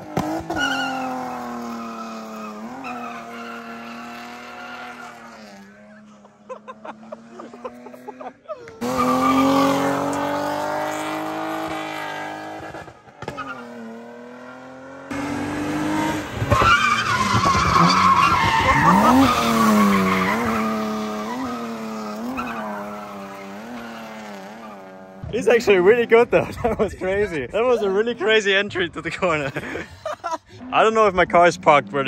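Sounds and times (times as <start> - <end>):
car engine revving: 0.0 - 8.2, 8.8 - 25.3, 30.7 - 32.0
tyres squealing: 8.6 - 10.2, 16.5 - 24.8.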